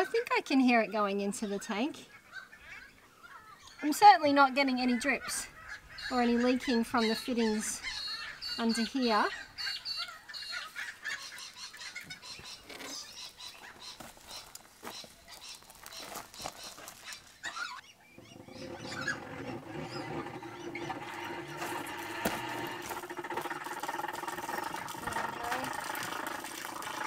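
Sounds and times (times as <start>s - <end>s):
water rushing from a hose: 19.6s - 27.0s.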